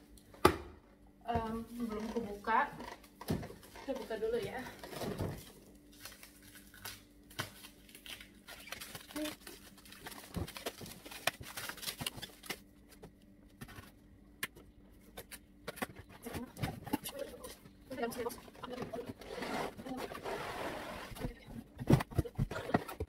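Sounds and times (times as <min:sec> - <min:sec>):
plastic wrap crinkling and tearing: 0:04.8 - 0:12.7.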